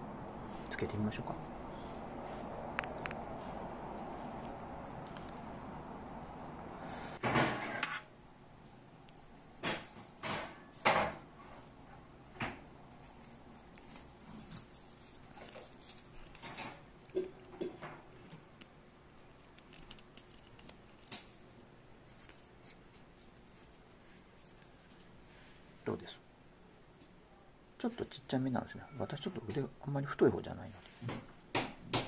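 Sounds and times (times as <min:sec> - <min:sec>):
watch strap rubbing and sliding: 0:01.8 - 0:06.4, 0:12.9 - 0:16.4, 0:19.3 - 0:25.6.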